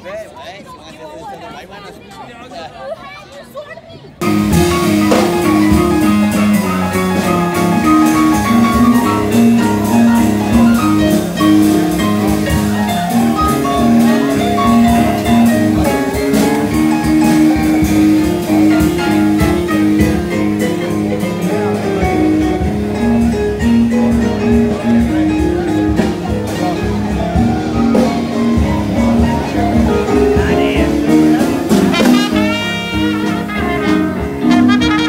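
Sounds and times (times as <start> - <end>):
music with steady beat and bass: 4.2 - 35.0.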